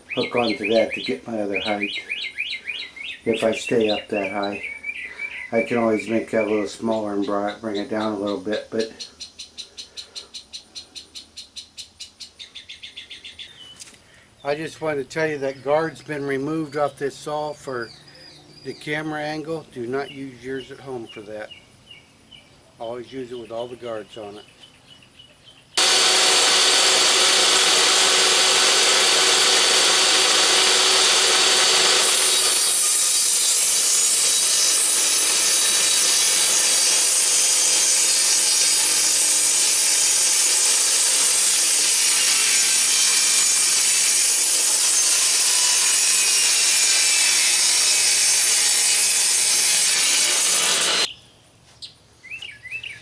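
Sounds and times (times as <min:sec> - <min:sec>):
table saw ripping plywood: 0:25.8 - 0:51.1.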